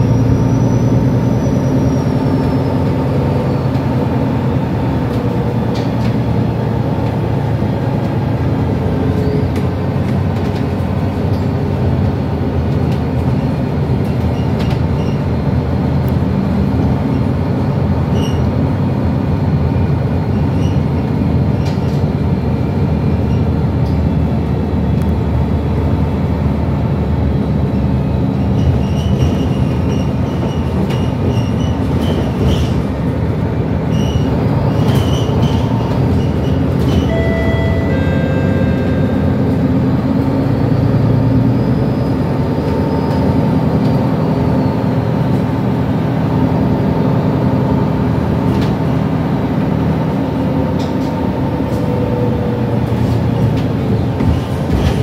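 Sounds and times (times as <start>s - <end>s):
bus diesel engine droning: 0.0s - 55.0s
road noise: 0.0s - 55.0s
interior rattles and clicks: 2.9s - 8.2s, 9.4s - 17.6s, 28.4s - 37.1s, 50.7s - 55.0s
short high tones: 37.0s - 39.7s.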